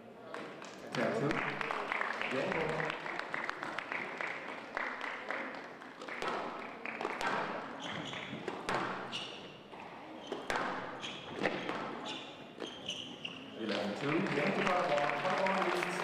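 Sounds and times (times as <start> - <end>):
squash ball cracking off rackets: 6.1 - 9.1, 10.3 - 12.0
shoes squeaking on wooden floor: 7.7 - 13.8.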